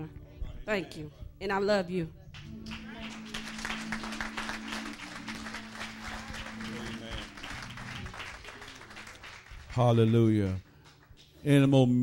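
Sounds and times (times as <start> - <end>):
congregation clapping: 2.4 - 11.3.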